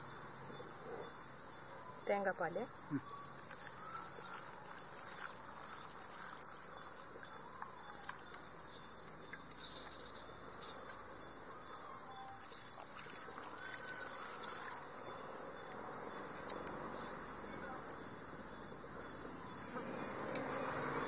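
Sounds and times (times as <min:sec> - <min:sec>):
water dribbling from glass: 0:02.7 - 0:10.3, 0:11.7 - 0:15.2
liquid trickling into pot: 0:02.8 - 0:08.4, 0:12.4 - 0:14.9.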